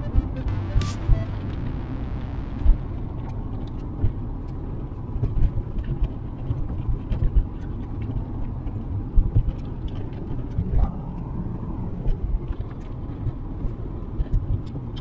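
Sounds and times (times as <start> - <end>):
engine and tyre rumble: 1.5 - 15.0
rain ticking on windscreen: 2.8 - 15.0.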